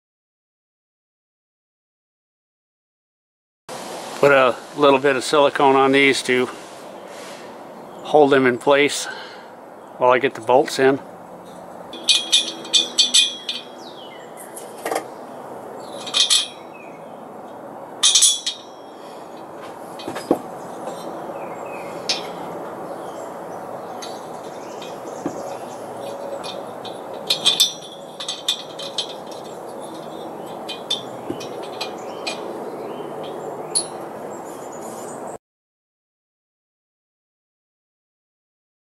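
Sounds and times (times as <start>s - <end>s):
steady background hiss: 3.7s - 35.0s
metal parts clinking and knocking: 11.4s - 15.1s, 15.8s - 16.6s, 18.0s - 21.2s, 22.0s - 22.5s, 23.9s - 32.6s, 33.2s - 34.1s.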